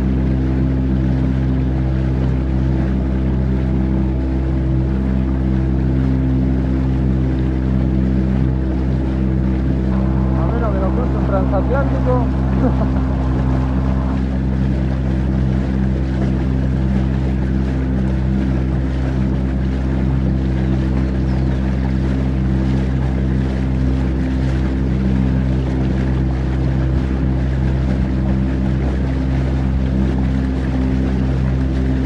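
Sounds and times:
boat motor droning: 0.0s - 32.0s
water rushing against hull: 0.0s - 32.0s
wind on microphone: 7.8s - 32.0s.

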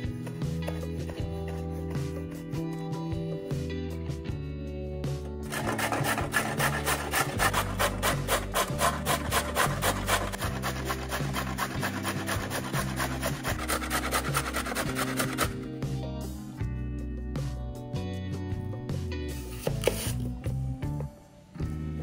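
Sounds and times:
background music: 0.0s - 22.0s
carrot rasping on a grater: 5.5s - 15.6s.

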